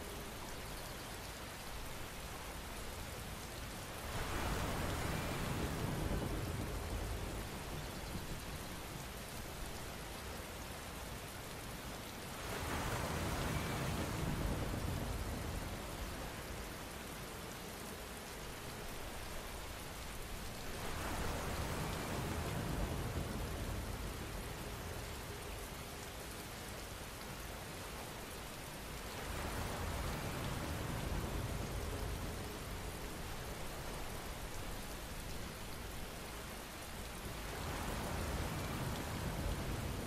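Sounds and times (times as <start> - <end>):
steady rain: 0.0 - 40.0.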